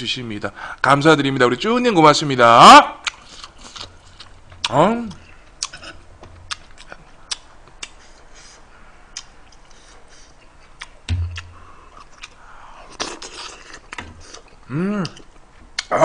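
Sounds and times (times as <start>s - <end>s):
dull thump: 11.1s - 11.5s.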